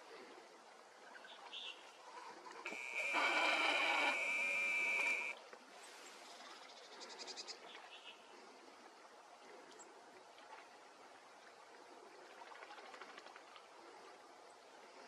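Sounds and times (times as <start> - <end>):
faint high bird calls: 2.7 - 5.4.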